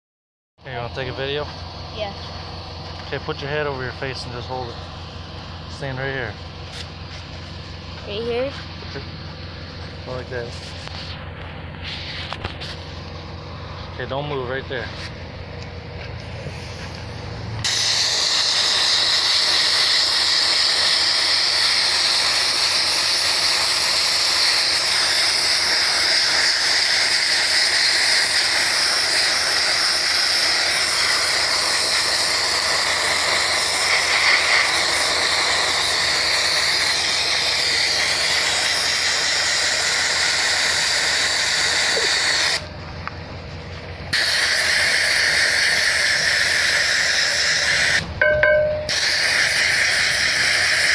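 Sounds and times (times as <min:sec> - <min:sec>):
low hum: 0:00.7 - 0:18.0, 0:48.0 - 0:49.3
sandblaster hissing: 0:16.2 - 0:42.7, 0:44.1 - 0:48.1, 0:48.9 - 0:50.9.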